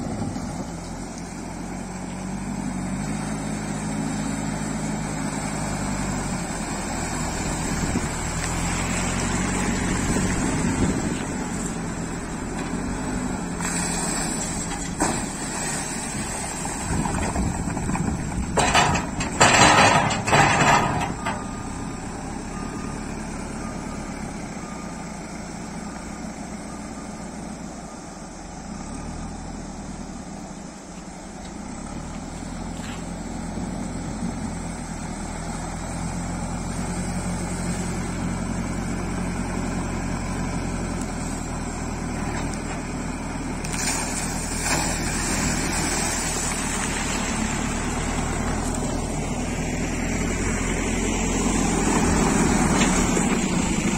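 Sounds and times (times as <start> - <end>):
diesel engine running: 0.0 - 53.9
water splashing: 43.6 - 48.4.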